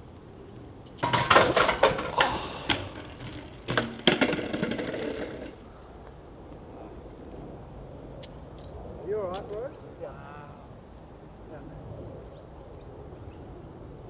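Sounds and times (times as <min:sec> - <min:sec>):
bike rattling and scraping: 0:00.9 - 0:05.6
bike hard impacts: 0:01.0 - 0:05.6.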